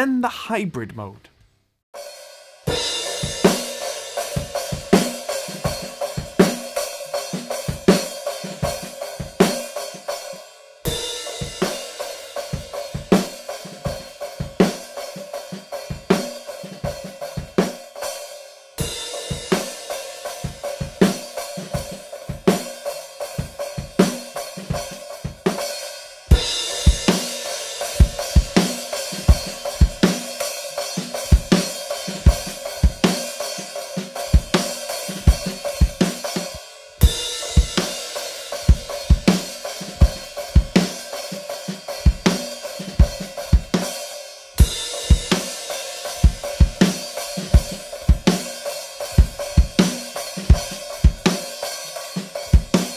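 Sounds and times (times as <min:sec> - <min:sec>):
drum kit playing groove: 0:00.0 - 0:01.2, 0:02.7 - 0:10.0, 0:18.8 - 0:52.9.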